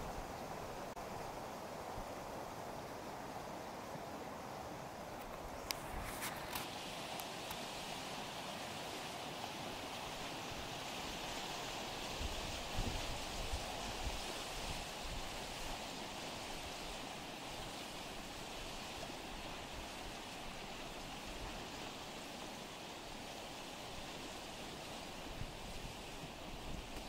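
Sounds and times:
stream water rushing: 0.0 - 27.0.

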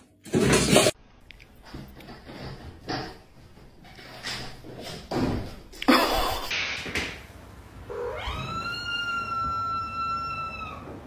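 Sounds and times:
cat meowing: 7.9 - 11.0.

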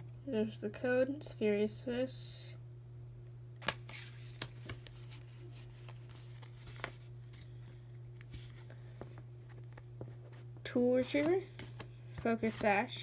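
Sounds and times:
steady low hum: 0.0 - 13.0
trading cards rustling: 3.6 - 13.0.

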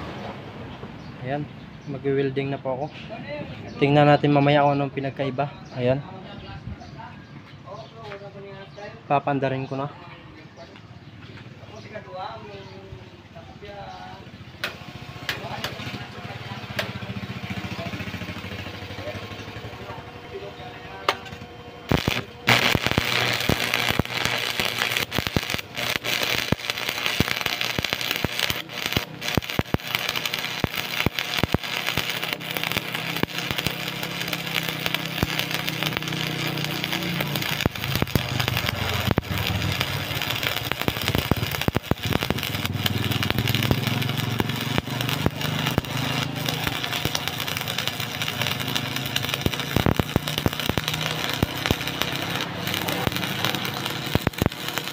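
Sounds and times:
welding arc crackling and sizzling: 14.6 - 54.9
low hum: 19.6 - 54.9.

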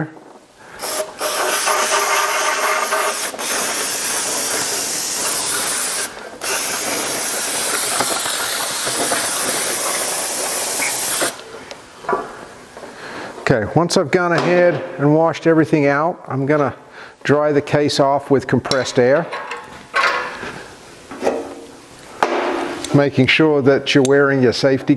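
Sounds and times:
aerosol can spraying hiss: 0.8 - 11.4.

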